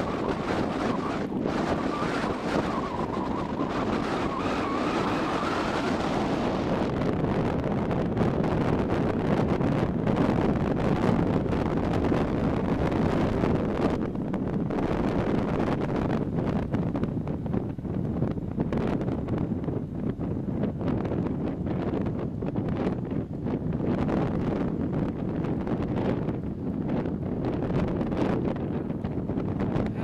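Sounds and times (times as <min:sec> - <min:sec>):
faint wavering whistle: 0:00.0 - 0:06.0
wind buffeting microphone: 0:00.0 - 0:30.0.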